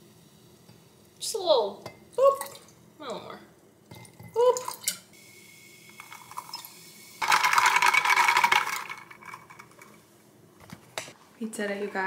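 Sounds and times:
liquid pouring over ice: 0:06.0 - 0:09.7.

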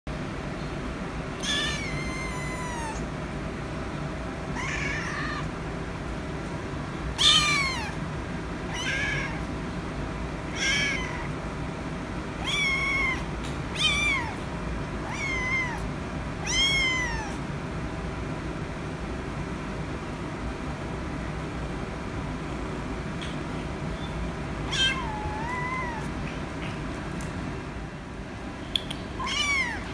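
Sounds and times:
kitten meowing: 0:01.4 - 0:03.1, 0:04.6 - 0:05.5, 0:07.2 - 0:08.0, 0:08.7 - 0:09.5, 0:10.5 - 0:11.3, 0:12.4 - 0:14.4, 0:15.0 - 0:17.4, 0:24.7 - 0:26.2, 0:29.2 - 0:29.9.

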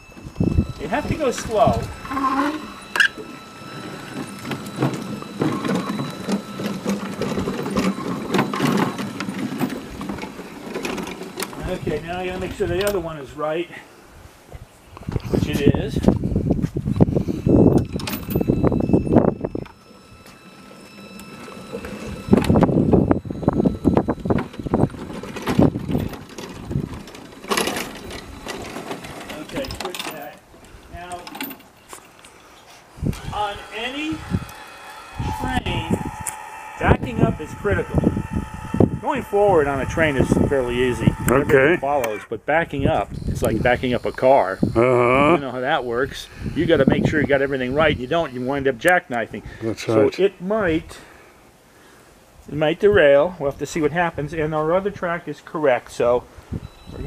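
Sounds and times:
electric motor whirring: 0:00.0 - 0:11.9, 0:17.1 - 0:26.0, 0:33.0 - 0:42.2
wheels clicking over rail joints: 0:00.0 - 0:13.2, 0:17.7 - 0:32.8.

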